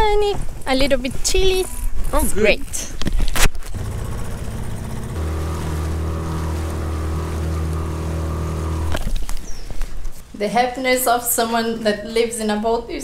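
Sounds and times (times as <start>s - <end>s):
outboard motor humming: 3.6s - 9.5s.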